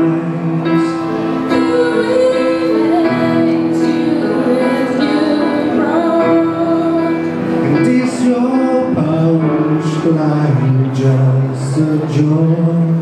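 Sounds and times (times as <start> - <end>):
grand piano: 0.0 - 13.0
woman singing: 1.4 - 7.4.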